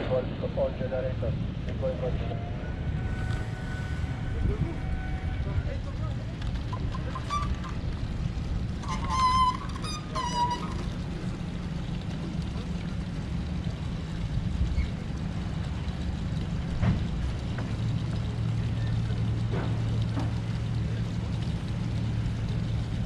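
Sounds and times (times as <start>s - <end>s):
boat engines idling: 0.0s - 23.0s
short high-pitched calls: 8.8s - 10.9s.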